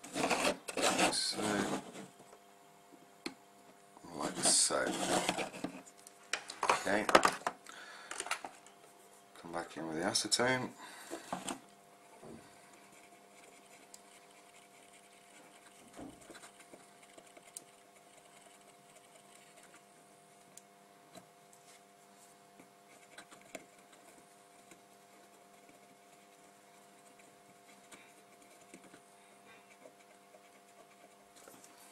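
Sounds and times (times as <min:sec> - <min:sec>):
brush scrubbing circuit board: 0:00.0 - 0:02.1, 0:04.1 - 0:05.8, 0:12.8 - 0:19.9, 0:22.9 - 0:31.4
steady low hum: 0:00.0 - 0:31.9.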